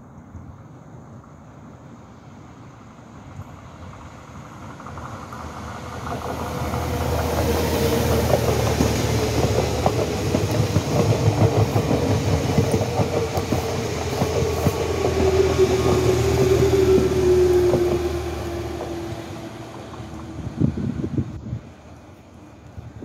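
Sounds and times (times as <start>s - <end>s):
train whine: 0.0s - 23.0s
wheels clattering over rail joints: 4.5s - 22.2s.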